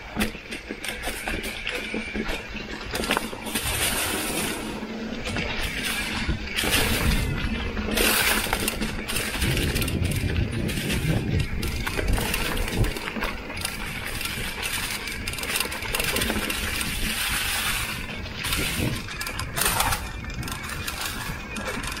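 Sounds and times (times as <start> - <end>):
bike rattling and clicking: 0.0 - 22.0
bike tyres crunching through leaves: 0.0 - 22.0.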